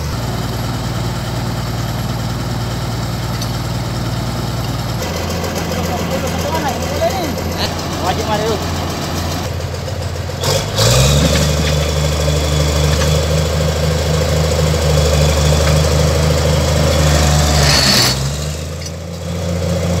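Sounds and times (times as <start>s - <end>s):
bulldozer diesel engine revving: 0.0s - 20.0s.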